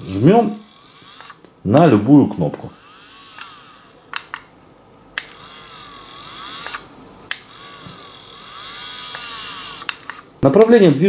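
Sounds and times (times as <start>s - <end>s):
small geared motor whirring: 0.0s - 1.4s, 2.7s - 4.3s, 5.2s - 10.2s.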